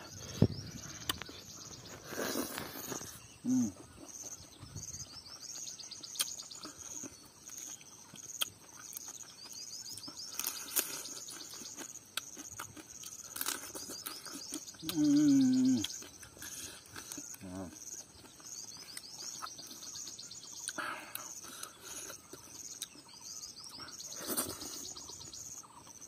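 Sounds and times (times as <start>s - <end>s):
insect chirping: 0.0s - 26.0s
person humming: 3.4s - 3.8s, 14.8s - 15.9s.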